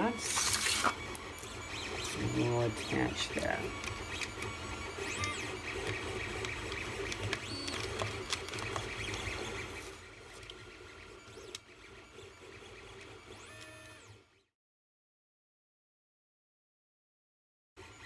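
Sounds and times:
plastic parts rubbing: 0:00.2 - 0:14.0
small plastic clicks: 0:03.8 - 0:09.4.

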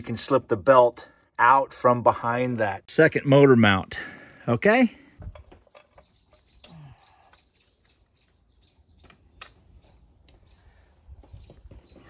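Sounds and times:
faint birds chirping: 0:02.7 - 0:12.0.

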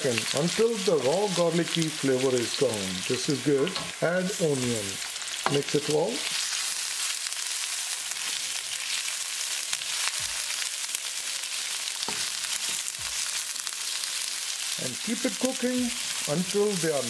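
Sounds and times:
vegetables sizzling in hot oil: 0:00.0 - 0:17.0
spatula scraping a wok: 0:11.9 - 0:13.6.

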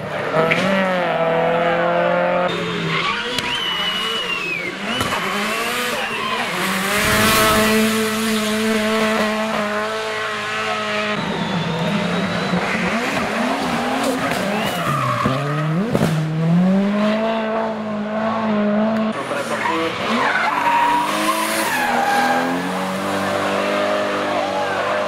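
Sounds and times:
race car engines revving: 0:00.0 - 0:25.0
tyre squeal: 0:19.5 - 0:22.8.

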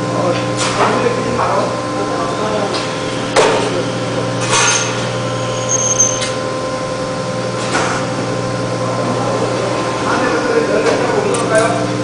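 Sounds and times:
machine humming: 0:00.0 - 0:12.0.

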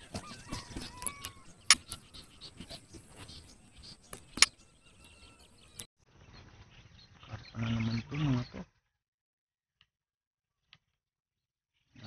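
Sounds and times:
faint outdoor background: 0:00.0 - 0:12.0
sharp clicks: 0:04.1 - 0:05.2.

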